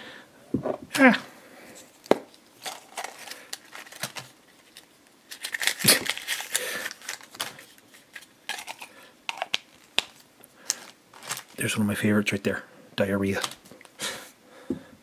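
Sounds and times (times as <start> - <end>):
plastic clatter and crinkle: 2.0 - 11.6.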